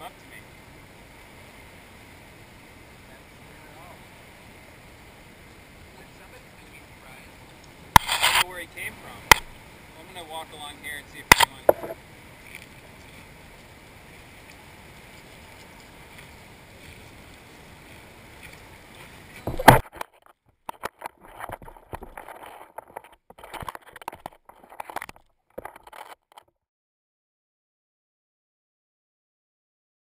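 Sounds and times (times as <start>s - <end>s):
water at shoreline: 0.0s - 26.2s
wind: 0.0s - 26.5s
crunching on pebble beach: 7.9s - 8.5s, 15.0s - 26.4s.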